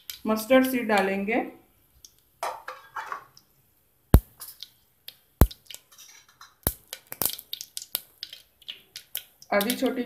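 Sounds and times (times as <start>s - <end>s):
seeds spluttering in hot oil: 4.2s - 10.0s.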